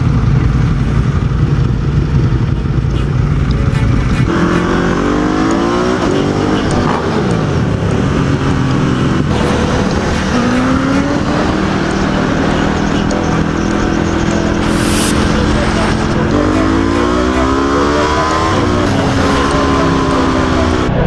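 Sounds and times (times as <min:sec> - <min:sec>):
motorcycle engine pulling hard: 0:00.0 - 0:14.7.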